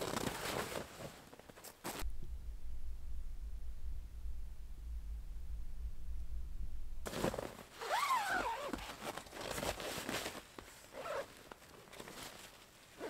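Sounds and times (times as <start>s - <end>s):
tent fabric rustling: 0.0s - 2.1s, 7.0s - 13.0s
low rumble: 2.0s - 7.1s.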